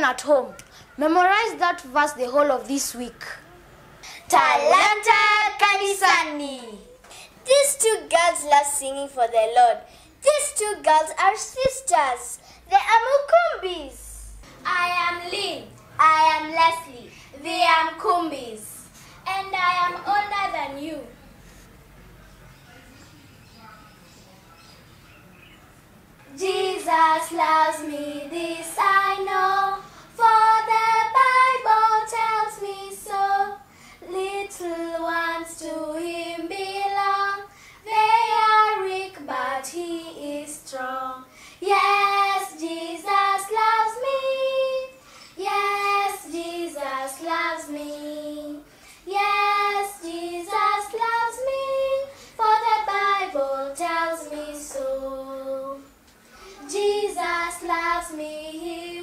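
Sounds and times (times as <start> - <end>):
girls singing gospel song: 4.1 - 8.8, 14.1 - 21.1, 26.2 - 59.0.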